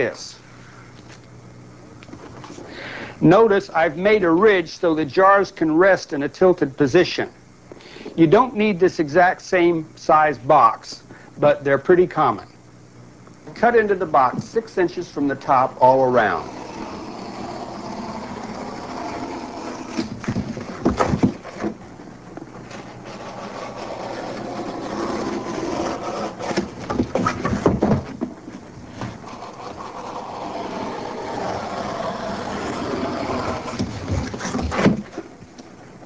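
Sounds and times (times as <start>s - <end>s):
blade cutting cardboard: 15.9s - 21.8s, 22.6s - 28.1s, 28.9s - 35.4s.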